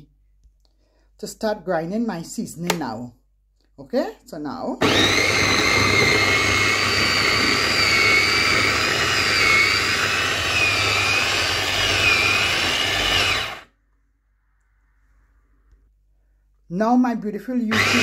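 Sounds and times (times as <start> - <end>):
food processor motor whining: 4.8 - 13.7, 17.7 - 18.0.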